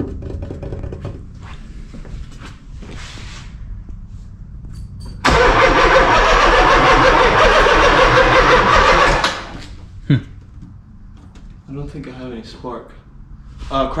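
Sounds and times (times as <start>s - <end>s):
car engine cranking on starter: 5.2s - 9.7s.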